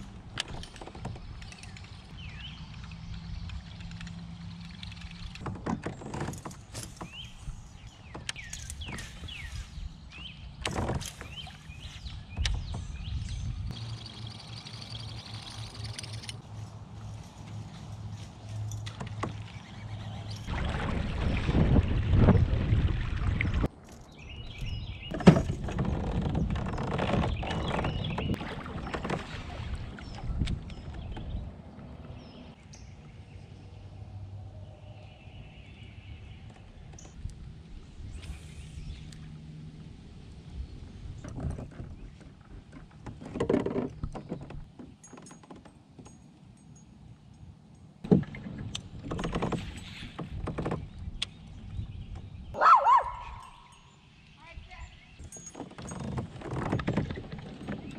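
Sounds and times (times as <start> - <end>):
fishing gear clicks and knocks: 0.0 - 9.5, 14.4 - 20.5, 41.2 - 52.4, 55.2 - 57.9
water lapping around kayak: 0.0 - 33.2, 35.0 - 45.0, 48.0 - 53.2, 55.2 - 57.9
bird chirps: 11.2 - 16.3.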